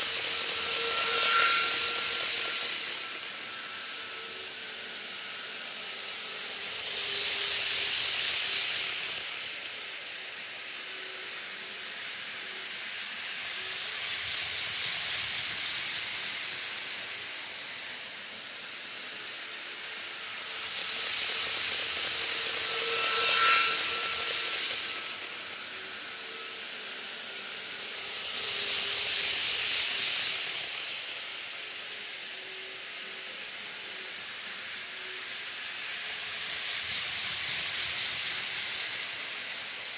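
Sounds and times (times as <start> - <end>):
brief ringing squeal: 0.0 - 9.0, 20.5 - 30.3
model trains running on track: 0.0 - 39.9.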